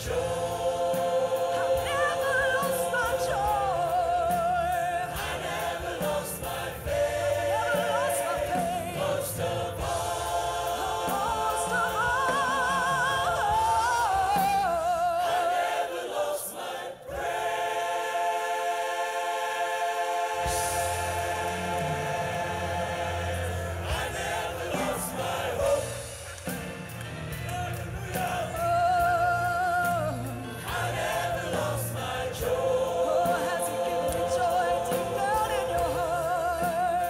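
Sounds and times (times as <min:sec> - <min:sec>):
gospel choir singing: 0:00.0 - 0:37.0
instrumental accompaniment: 0:00.0 - 0:37.0
woman singing with vibrato: 0:01.6 - 0:05.0, 0:11.1 - 0:15.3.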